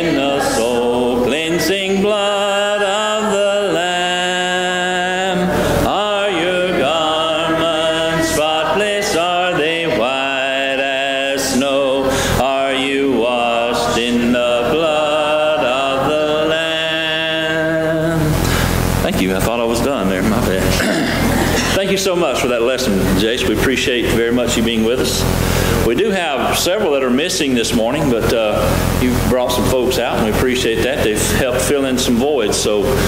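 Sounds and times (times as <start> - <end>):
congregation singing a hymn: 0.0 - 18.2.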